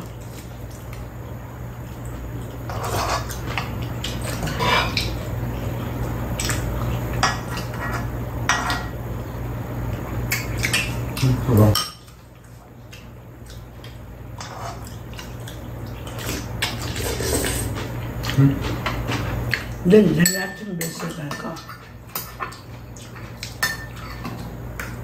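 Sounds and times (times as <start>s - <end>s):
steady low hum: 0.0s - 25.0s
utensils clinking against pan: 20.2s - 22.6s, 23.6s - 24.4s.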